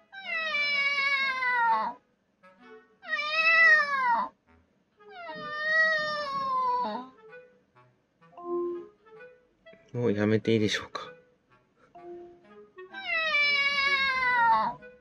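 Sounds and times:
recorded cat meows from speaker: 0:00.1 - 0:02.0, 0:03.0 - 0:04.3, 0:05.1 - 0:07.1, 0:13.0 - 0:14.8.

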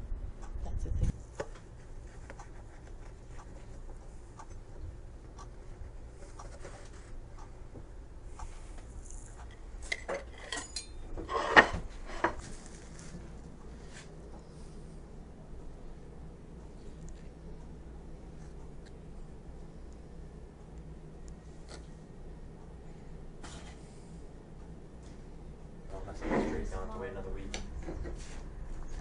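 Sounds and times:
metal clanks ringing: 0:10.5 - 0:11.0.

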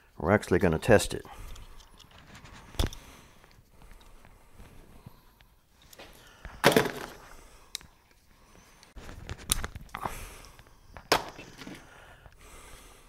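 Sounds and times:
objects knocking and clattering: 0:06.5 - 0:07.2.

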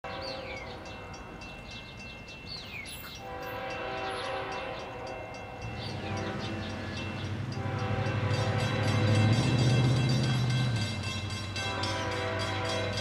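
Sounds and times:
distant train horn: 0:00.0 - 0:01.2, 0:03.1 - 0:13.0
diesel locomotive rumble: 0:03.1 - 0:13.0.

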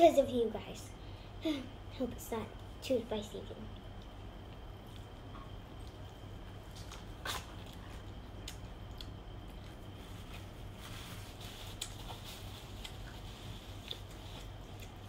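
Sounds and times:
steady low hum: 0:00.0 - 0:15.0
faint chewing clicks: 0:03.7 - 0:09.8, 0:12.8 - 0:15.0.

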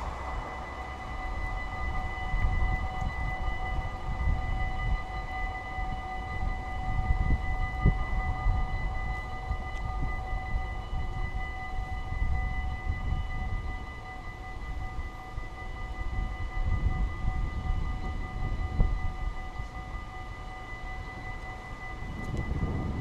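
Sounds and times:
low uneven rumble: 0:00.0 - 0:04.6
level crossing warning bells: 0:00.0 - 0:23.0.

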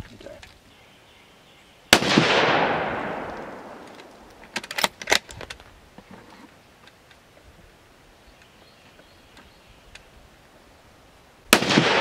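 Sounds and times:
rifle shot with echo: 0:01.9 - 0:04.2, 0:11.5 - 0:12.0
rifle bolt metallic clicks: 0:03.2 - 0:05.6.

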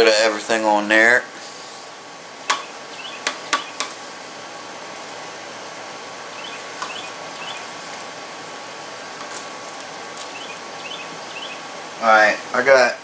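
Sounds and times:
steady background noise: 0:00.0 - 0:13.0
faint high chirps: 0:06.3 - 0:07.7.

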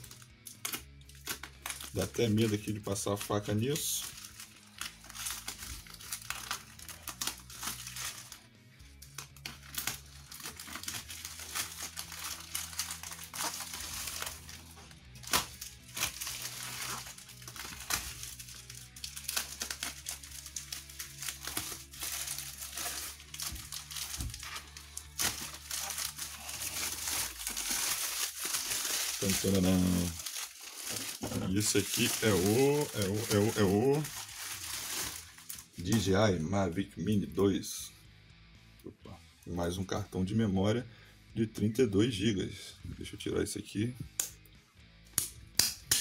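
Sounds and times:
plastic crinkling: 0:00.0 - 0:08.4, 0:09.0 - 0:36.1
soft background music: 0:00.0 - 0:46.0.

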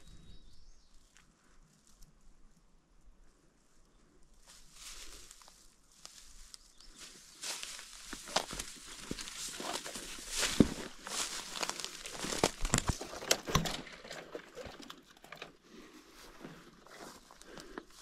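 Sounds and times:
footsteps crunching through dry leaves: 0:04.4 - 0:13.2
twigs snapping: 0:07.4 - 0:15.4.

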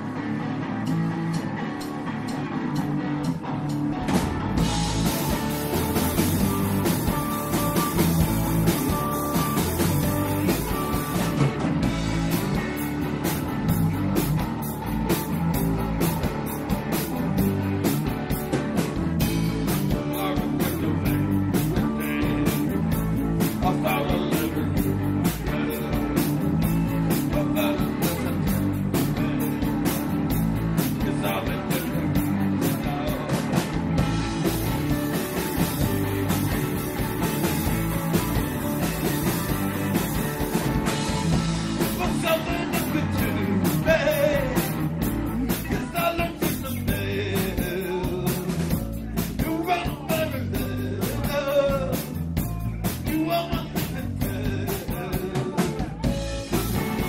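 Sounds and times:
live rock band playing: 0:00.0 - 0:57.0
man singing: 0:19.6 - 0:33.8, 0:41.7 - 0:57.0.

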